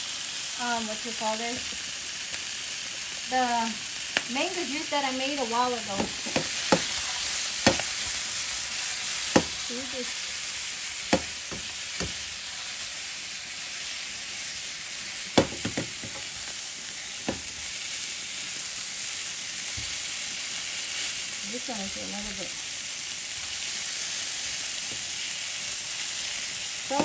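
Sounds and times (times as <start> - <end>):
sausages sizzling in a frying pan: 0.0 - 27.0
pan knocking on stovetop: 5.9 - 7.0, 7.6 - 7.9, 9.3 - 9.6, 11.1 - 12.2, 15.4 - 16.2.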